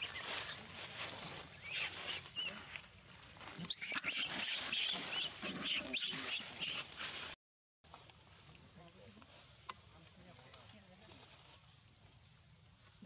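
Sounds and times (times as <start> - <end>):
baby monkey squealing: 1.6 - 2.6, 3.6 - 6.9.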